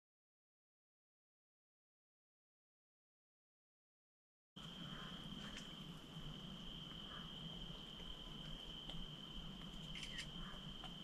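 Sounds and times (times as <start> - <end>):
insect high-pitched trill: 4.6 - 11.0
low background rumble: 4.6 - 11.0.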